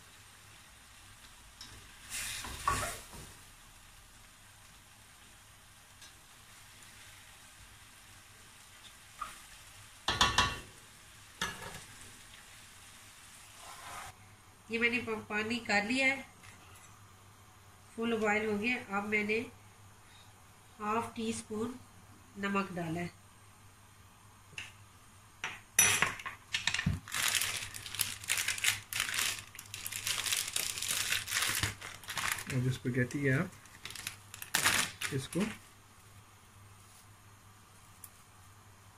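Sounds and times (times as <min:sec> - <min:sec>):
food sizzling in a frying pan: 0:00.0 - 0:14.2
spatula scraping a pan: 0:13.5 - 0:14.2
dry spaghetti crackling: 0:27.0 - 0:36.2.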